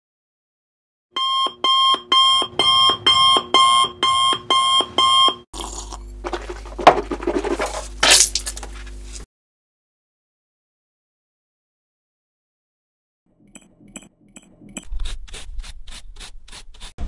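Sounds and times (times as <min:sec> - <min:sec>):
alarm clock beeping: 0:01.2 - 0:05.4.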